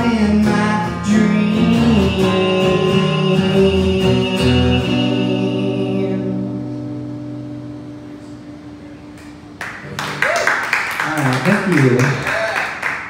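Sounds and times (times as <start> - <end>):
acoustic guitar chord ringing: 0.0 - 9.9
people clapping: 9.2 - 13.0.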